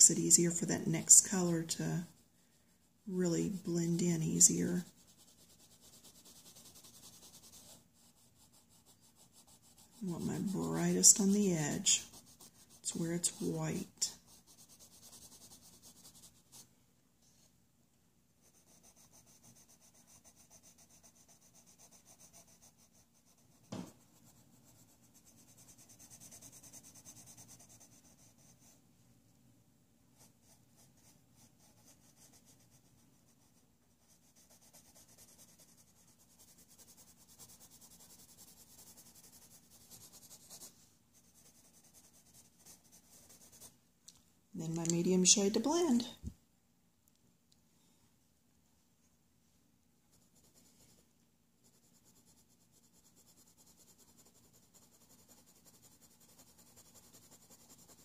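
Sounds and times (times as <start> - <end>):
pencil scratching on paper: 0.0 - 16.6, 18.4 - 28.8, 30.2 - 43.7, 50.1 - 51.0, 51.6 - 58.0
sharp tap: 23.7 - 24.0.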